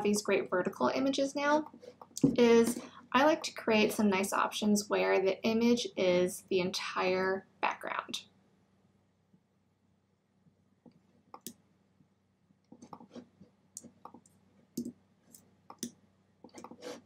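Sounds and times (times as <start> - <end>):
computer mouse clicks: 10.9 - 11.6, 12.7 - 13.2, 13.8 - 17.0.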